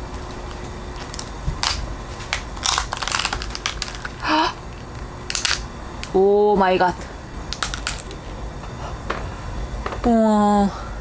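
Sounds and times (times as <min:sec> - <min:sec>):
crab shell cracking: 0:01.0 - 0:06.1, 0:07.5 - 0:08.2.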